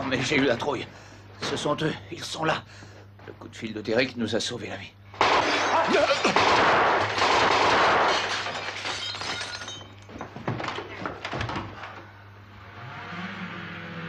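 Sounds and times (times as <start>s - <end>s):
glass shattering crash: 5.2s - 6.5s, 7.8s - 10.0s.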